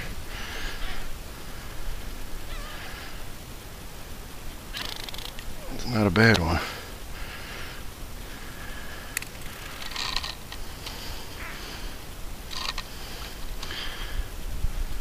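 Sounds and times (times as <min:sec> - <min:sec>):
fishing line rubbing and rustling: 0:00.0 - 0:03.4, 0:04.7 - 0:06.3, 0:09.3 - 0:13.8.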